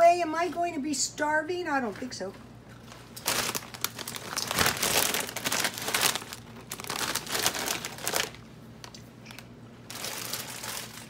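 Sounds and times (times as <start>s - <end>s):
plastic snack bag crinkling: 2.8s - 11.0s.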